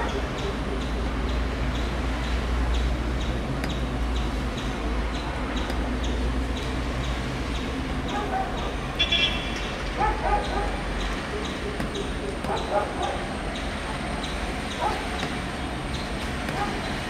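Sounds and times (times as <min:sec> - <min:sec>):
distant helicopter drone: 0:00.0 - 0:17.0.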